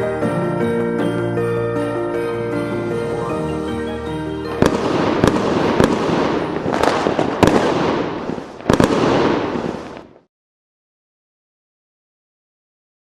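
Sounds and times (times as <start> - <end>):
music: 0.0 - 7.9
fireworks crackling: 2.5 - 10.3
firework bangs: 4.4 - 10.3.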